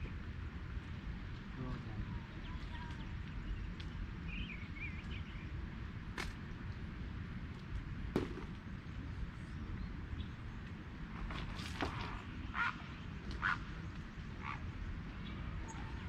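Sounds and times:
low outdoor rumble: 0:00.0 - 0:16.0
bird chirping: 0:02.2 - 0:05.5.

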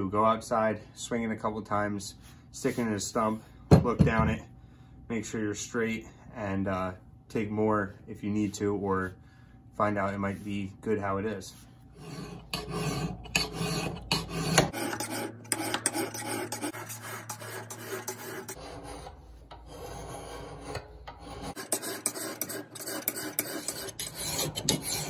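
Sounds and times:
metal file strokes on steel: 0:11.5 - 0:25.0.

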